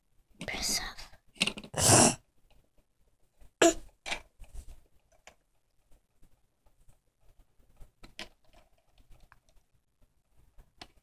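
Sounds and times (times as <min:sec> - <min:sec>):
plastic toys clicking on table: 0:01.4 - 0:01.8, 0:04.0 - 0:04.4.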